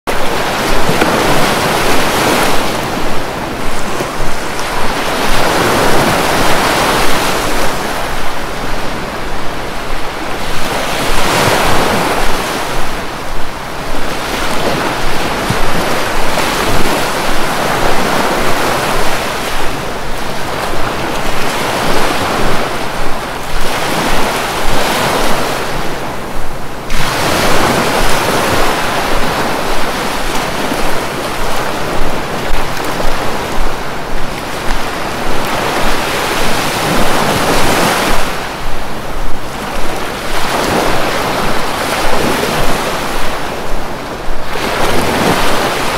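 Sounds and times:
sea waves breaking on beach: 0.1s - 45.9s.

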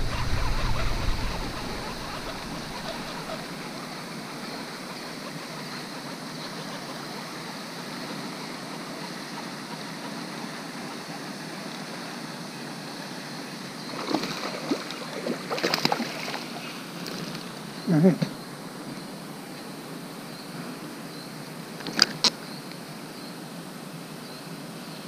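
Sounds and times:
low rumble: 0.0s - 3.8s.

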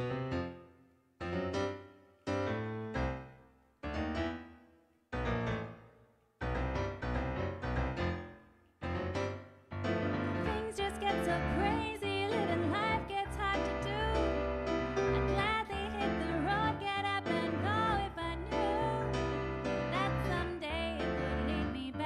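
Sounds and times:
slow piano chords: 0.0s - 22.0s
woman singing: 10.5s - 14.5s, 15.1s - 22.0s.

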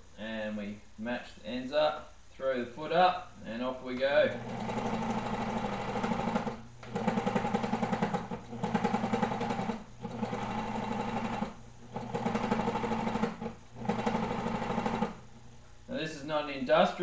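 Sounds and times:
serger stitching: 4.1s - 15.3s.

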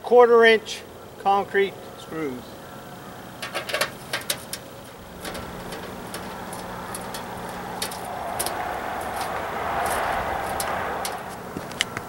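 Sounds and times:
steady rushing noise: 5.0s - 12.0s.

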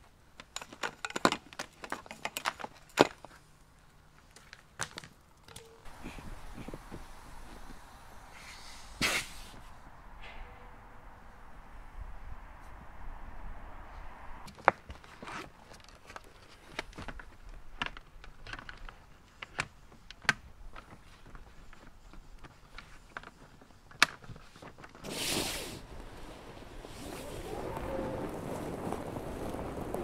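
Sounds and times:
dinghy dragged across grass: 25.0s - 30.0s.

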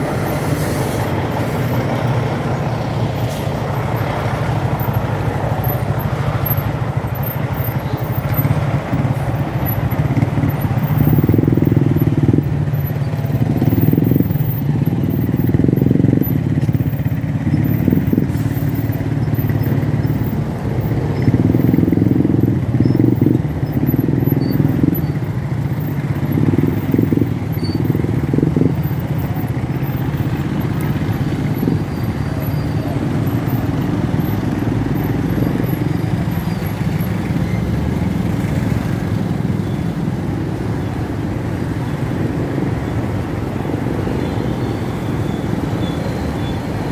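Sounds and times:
car engines at low speed: 0.0s - 46.9s
motorcycle engines passing: 0.0s - 46.9s.

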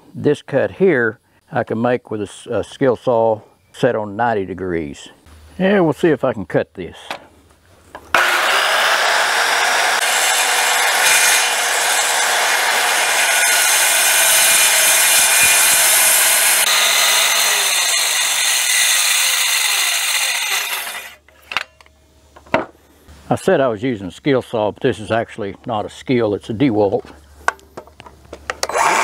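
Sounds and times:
circular saw cutting wood: 8.1s - 21.2s, 28.6s - 29.0s.

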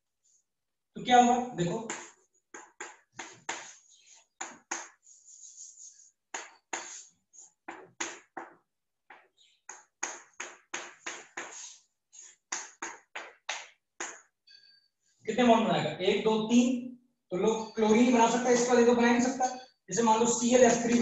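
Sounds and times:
chalk tapping and scratching: 1.9s - 14.3s, 20.5s - 21.0s
chalk scraping on chalkboard: 2.0s - 13.0s.

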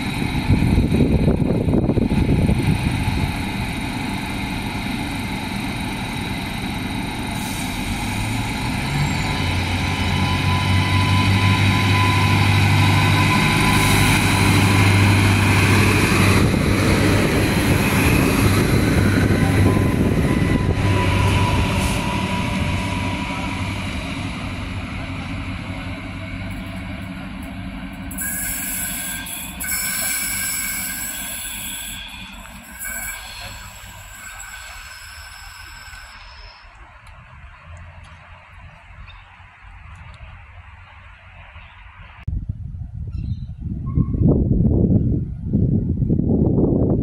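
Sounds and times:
diesel railcar engine: 0.0s - 42.2s.

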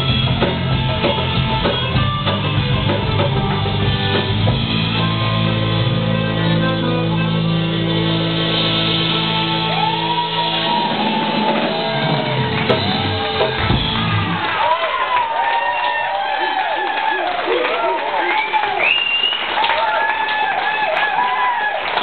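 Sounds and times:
folk-rock band playing: 0.0s - 14.6s
rising and falling whoops: 9.5s - 21.8s.

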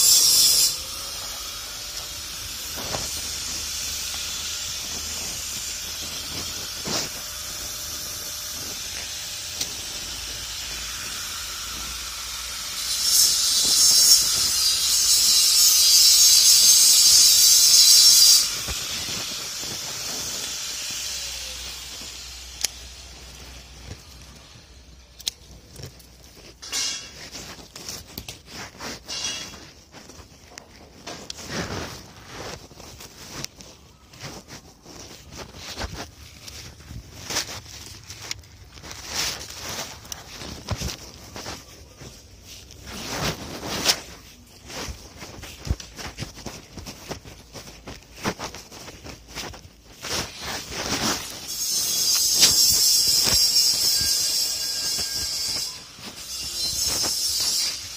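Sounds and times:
electric grinder grinding steel: 0.0s - 30.0s, 50.1s - 57.9s.

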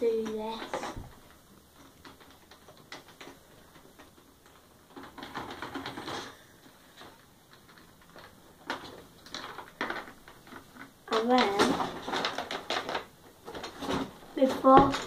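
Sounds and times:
rustling: 0.0s - 15.0s
plastic toy pieces clicking: 1.8s - 6.4s, 7.0s - 13.8s.

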